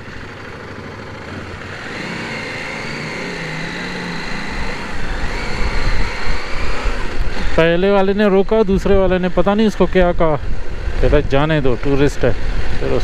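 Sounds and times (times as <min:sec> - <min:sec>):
motorcycle engine accelerating: 0:00.0 - 0:13.0
wind rumble on microphone: 0:04.4 - 0:13.0.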